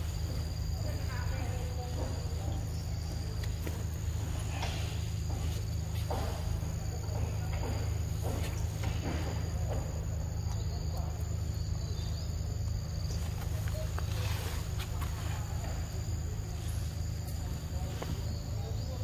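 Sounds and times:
constant low hum: 0.0s - 19.0s
insects chirring: 0.0s - 19.0s
soft rustles: 13.1s - 18.4s.

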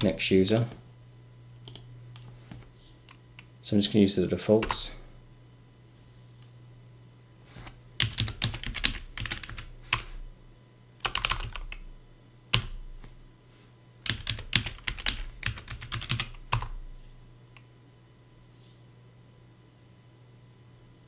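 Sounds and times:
typing on computer keyboard: 8.0s - 10.1s, 11.0s - 11.8s, 14.1s - 16.8s.

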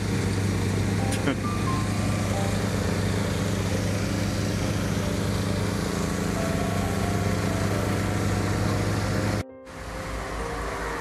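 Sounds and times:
excavator diesel engine drone: 0.0s - 11.0s.

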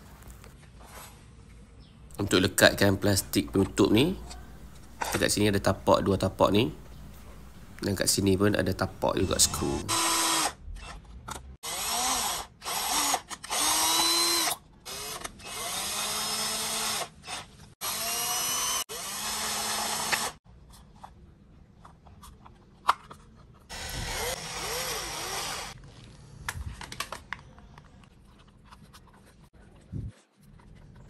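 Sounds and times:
electric drill motor whine: 9.2s - 10.6s, 11.6s - 17.1s, 17.8s - 20.4s, 23.7s - 25.8s.

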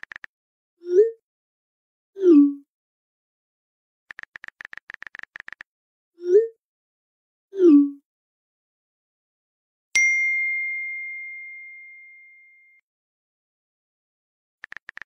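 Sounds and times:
bright ding: 10.0s - 12.8s.

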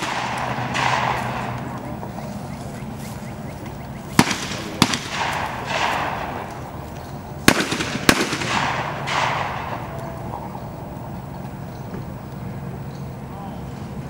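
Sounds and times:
shotgun shots with echo: 0.0s - 2.3s, 4.1s - 10.4s.

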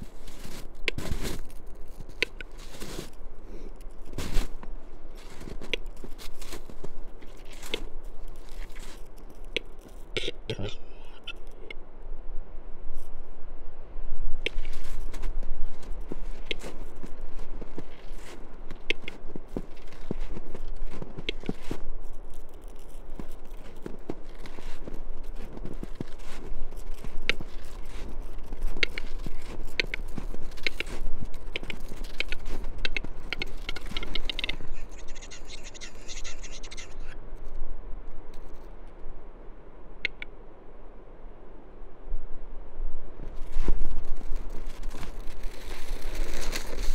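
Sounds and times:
bird dry clicks: 18.7s - 21.7s, 26.8s - 34.8s.

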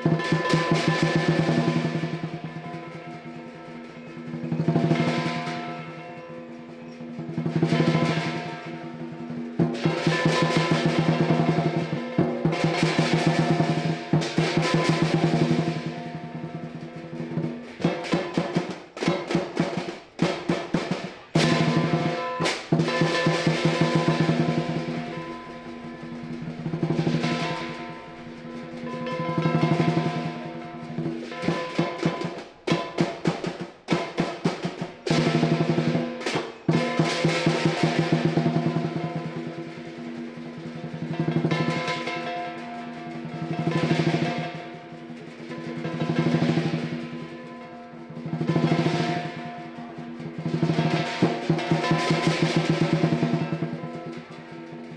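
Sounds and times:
cymbals ringing: 0.0s - 54.9s
drum rapid strokes and rolls: 0.0s - 54.9s
gong ringing: 21.4s - 32.3s.

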